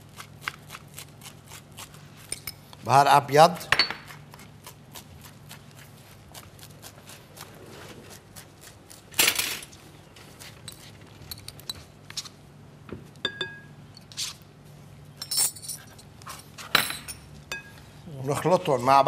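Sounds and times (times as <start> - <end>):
ringing clinks: 13.2 - 13.8, 15.2 - 15.9
utensils clinking against glass bowl: 13.2 - 13.8.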